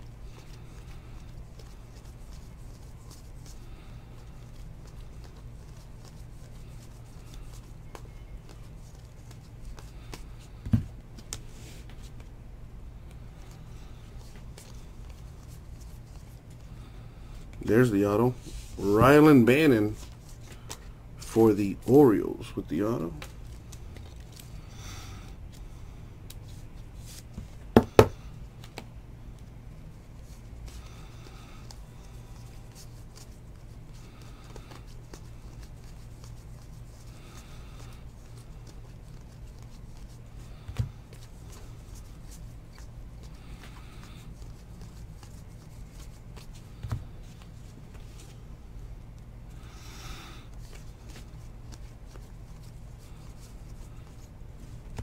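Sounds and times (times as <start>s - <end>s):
steady low hum: 0.0s - 55.0s
cards sliding and rustling: 0.3s - 12.4s, 13.1s - 16.8s, 22.7s - 24.6s, 30.1s - 48.5s, 50.5s - 55.0s.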